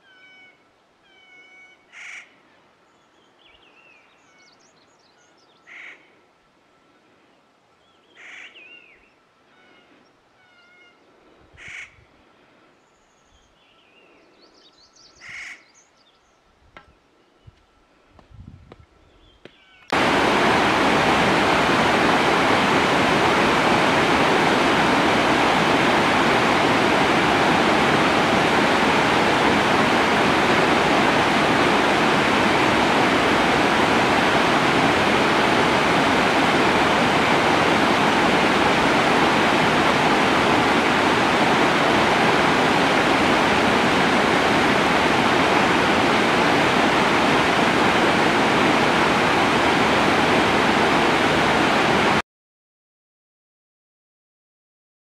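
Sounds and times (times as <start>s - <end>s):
stream rushing over stones: 19.9s - 52.2s.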